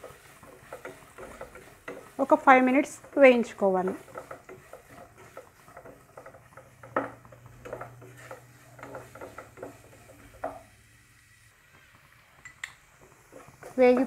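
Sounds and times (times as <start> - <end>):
spatula scraping frying vegetables: 0.0 - 14.0.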